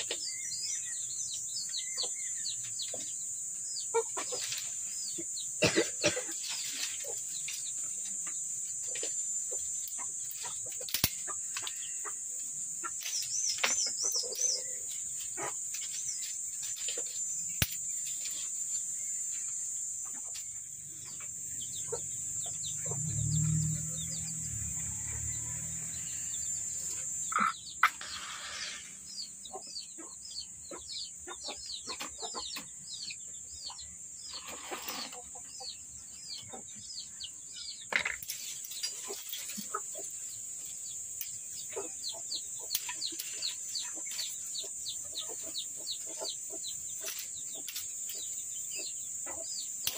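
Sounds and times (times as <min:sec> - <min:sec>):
small birds chirping: 0:00.0 - 0:49.9
dry twigs snapping: 0:09.8 - 0:11.9, 0:12.9 - 0:18.4, 0:38.1 - 0:39.7.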